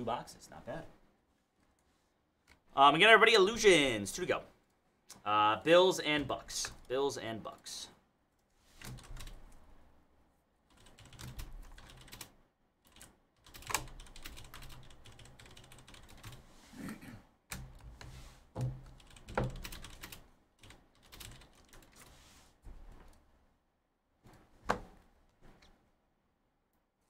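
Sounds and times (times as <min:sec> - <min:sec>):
computer keyboard typing: 0:08.8 - 0:09.6, 0:10.7 - 0:16.4, 0:18.8 - 0:22.1.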